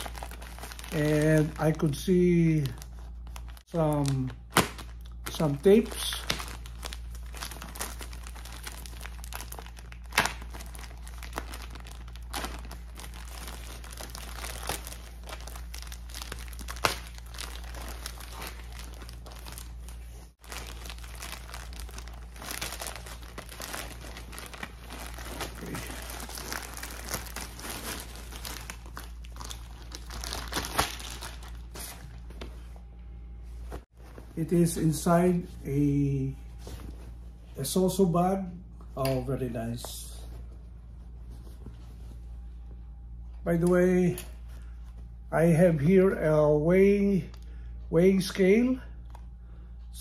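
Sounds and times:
plastic mailer crinkling and tearing: 0.0 - 32.2
fabric bag rustling: 10.5 - 32.1.

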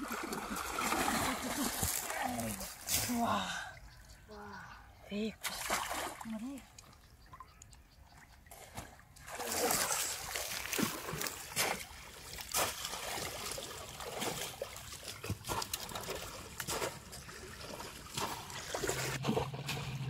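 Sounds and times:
wading splashes: 0.0 - 3.9, 5.4 - 7.5, 8.1 - 20.0
river water trickling: 0.0 - 20.0.

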